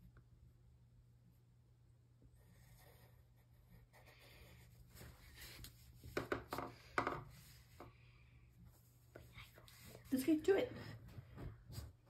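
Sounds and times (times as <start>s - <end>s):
pencil scratching on paper: 2.4s - 6.2s
pencil knocking on desk: 6.0s - 7.9s.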